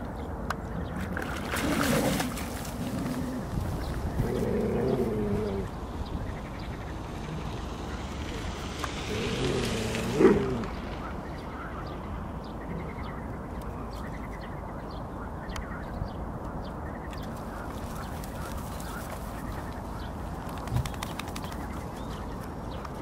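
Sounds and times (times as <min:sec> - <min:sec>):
outdoor background noise: 0:00.0 - 0:23.0
dog growling: 0:04.2 - 0:05.7, 0:09.1 - 0:10.8.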